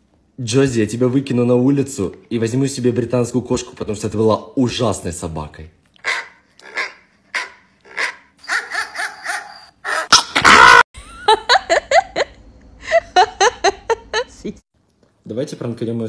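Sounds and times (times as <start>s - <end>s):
dog barking: 6.0s - 10.1s
woman laughing: 11.0s - 14.6s.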